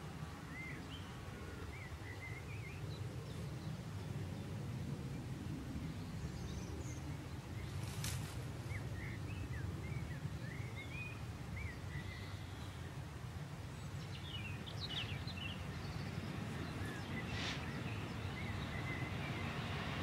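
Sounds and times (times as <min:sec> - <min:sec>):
birds chirping: 0:00.0 - 0:04.6, 0:05.8 - 0:20.0
distant diesel freight train: 0:14.9 - 0:20.0.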